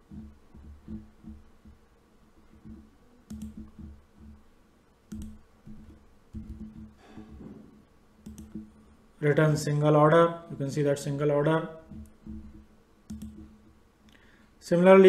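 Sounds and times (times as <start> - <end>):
faint low background noise: 0.0 - 15.0
computer mouse clicks: 2.5 - 4.4, 5.1 - 7.4, 8.2 - 8.8, 11.9 - 14.2.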